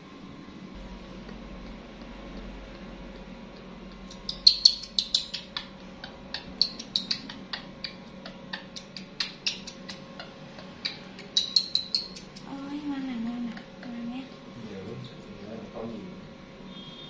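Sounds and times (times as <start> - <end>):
baby monkey shrieking: 4.1 - 12.5.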